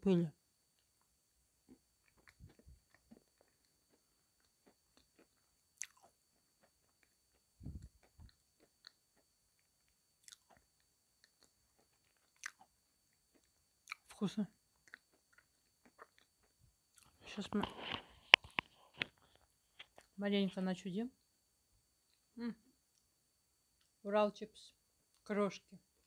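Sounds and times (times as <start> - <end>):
chewing chalk crunches: 1.7 - 12.7, 13.3 - 14.1, 14.8 - 20.1.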